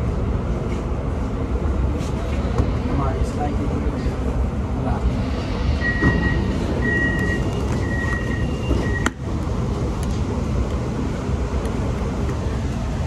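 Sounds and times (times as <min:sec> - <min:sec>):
train interior rumble: 0:00.0 - 0:13.0
short electronic beeps: 0:05.8 - 0:09.1.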